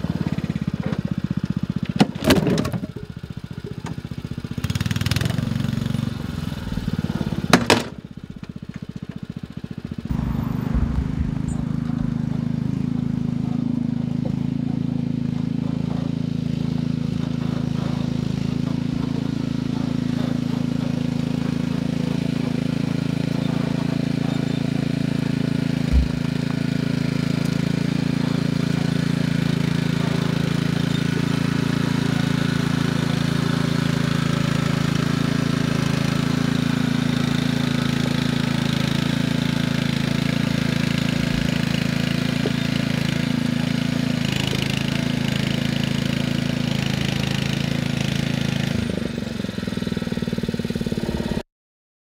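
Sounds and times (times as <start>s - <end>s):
small engine running: 0.0s - 51.4s
thump: 10.1s - 12.9s, 25.9s - 26.4s.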